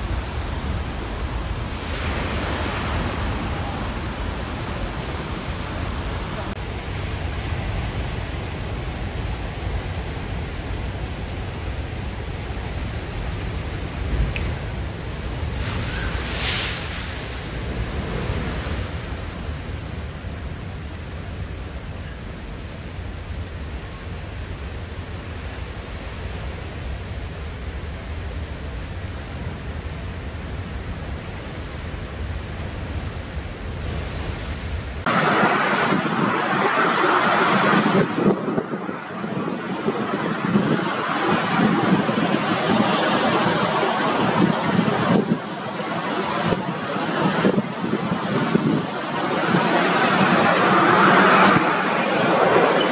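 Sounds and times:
waves crashing against sea wall: 0.0 - 6.8, 12.9 - 20.8, 33.5 - 52.9
wind rumbling on microphone: 0.0 - 52.9
hiss of spray: 15.5 - 17.5.

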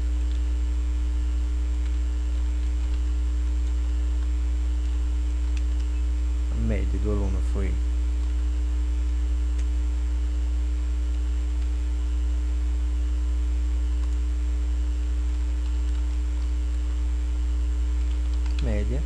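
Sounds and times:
electrical mains hum: 0.0 - 19.0
faint steady tone: 0.0 - 19.0
computer keyboard clicks: 15.3 - 16.5, 18.0 - 18.7.

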